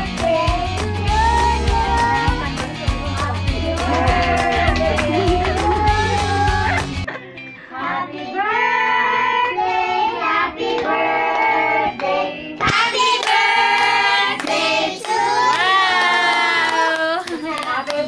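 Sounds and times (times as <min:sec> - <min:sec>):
children singing together: 0:00.0 - 0:06.7.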